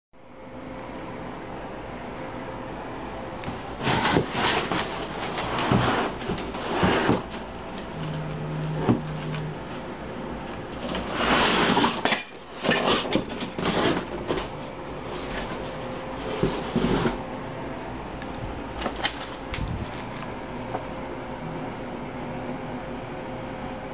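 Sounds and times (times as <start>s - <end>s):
rustling and scraping packaging: 3.4s - 17.3s, 18.8s - 21.0s
brief low hum: 7.8s - 10.1s.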